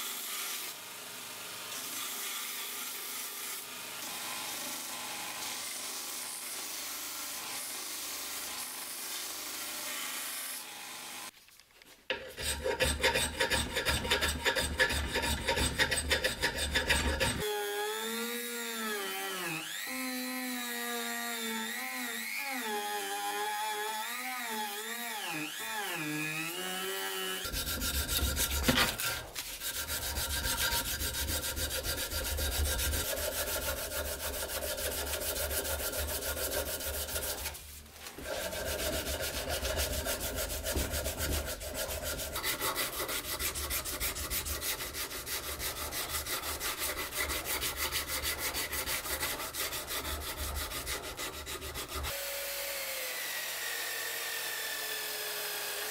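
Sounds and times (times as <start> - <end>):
hand file scraping: 12.1 - 17.5, 27.4 - 52.2.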